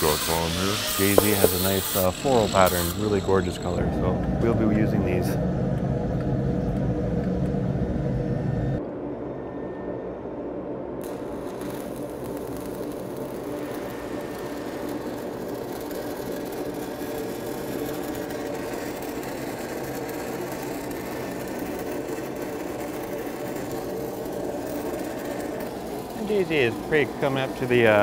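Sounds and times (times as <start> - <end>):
welding arc crackling and hissing: 0.0 - 3.8, 11.0 - 28.0
welding machine engine hum: 0.0 - 3.8, 11.0 - 28.0.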